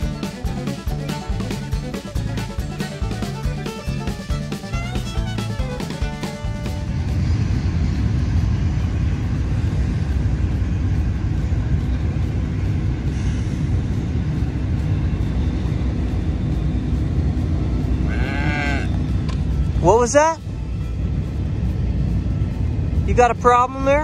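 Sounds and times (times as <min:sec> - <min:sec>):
steady low rumble: 0:00.0 - 0:24.0
cow mooing: 0:18.1 - 0:18.9.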